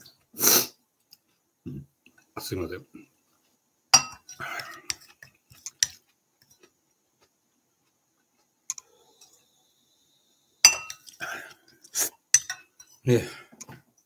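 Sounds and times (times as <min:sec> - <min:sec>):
spoon scraping bowl: 0:04.0 - 0:06.7, 0:08.7 - 0:09.5, 0:10.6 - 0:11.2.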